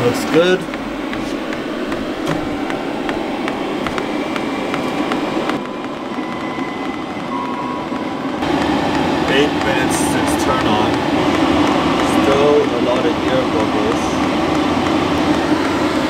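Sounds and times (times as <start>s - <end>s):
fuel pump ticking: 0.0s - 6.0s
faint whine: 0.0s - 16.0s
heater blower whoosh: 0.0s - 16.0s.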